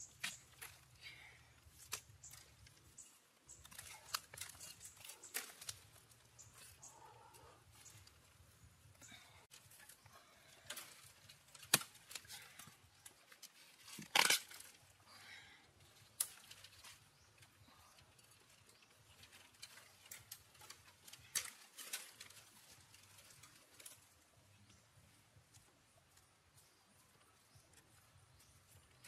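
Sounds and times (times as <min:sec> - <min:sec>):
scraping rustle: 0:16.1 - 0:24.6.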